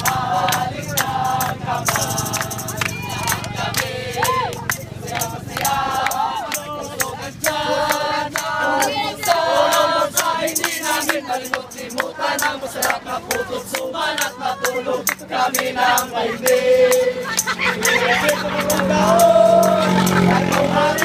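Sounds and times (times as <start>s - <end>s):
sharp handclaps: 0.0s - 9.4s
group singing in chorus: 0.0s - 21.0s.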